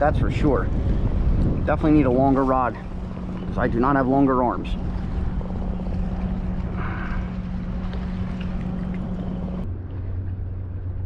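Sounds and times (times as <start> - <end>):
water: 0.0 - 11.0
wind noise: 0.0 - 11.0
electric motor humming: 2.8 - 9.6.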